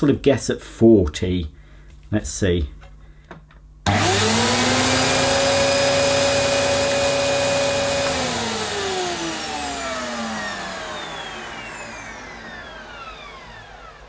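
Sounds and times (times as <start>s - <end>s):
vacuum cleaner motor running: 3.9s - 14.0s.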